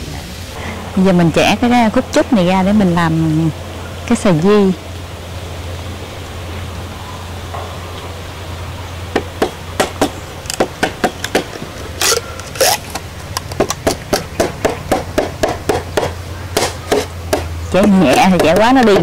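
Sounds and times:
wood splitting rasps: 0:09.2 - 0:19.0
knife chopping a stick: 0:13.5 - 0:19.0.

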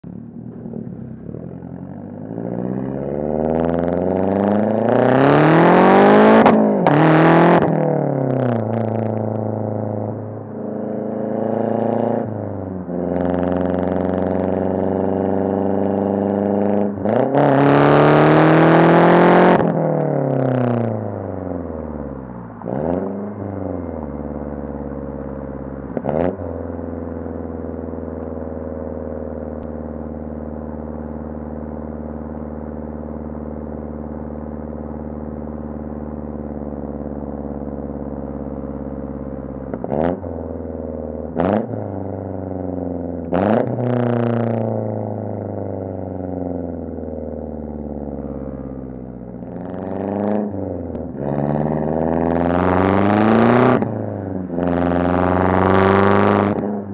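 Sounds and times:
car engine droning while cruising: 0:00.0 - 0:56.9.

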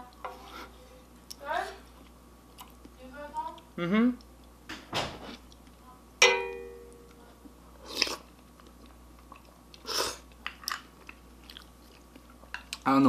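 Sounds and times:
utensil clinking on dish: 0:06.2 - 0:07.0.

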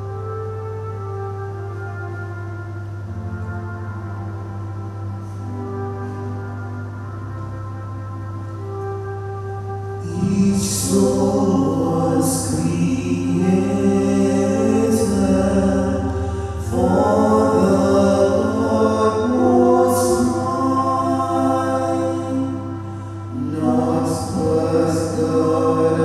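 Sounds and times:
instrumental accompaniment: 0:00.0 - 0:26.0
choir singing a hymn: 0:10.0 - 0:26.0.

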